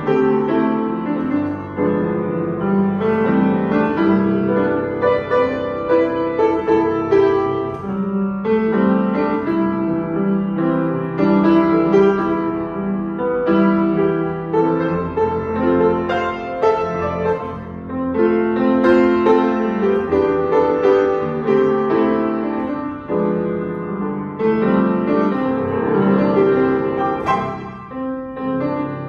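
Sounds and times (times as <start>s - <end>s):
upright piano playing chords: 0.0s - 29.0s.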